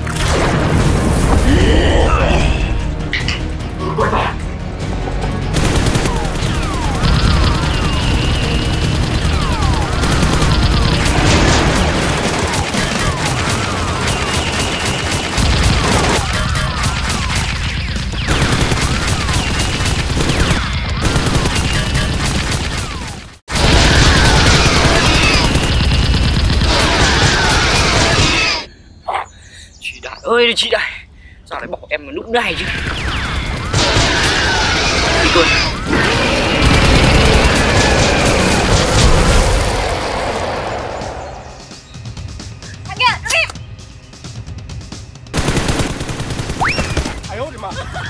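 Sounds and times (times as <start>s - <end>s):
dramatic action music: 0.0s - 28.7s, 32.4s - 48.0s
rapid gunfire: 5.5s - 28.6s, 32.6s - 40.9s, 45.3s - 47.7s.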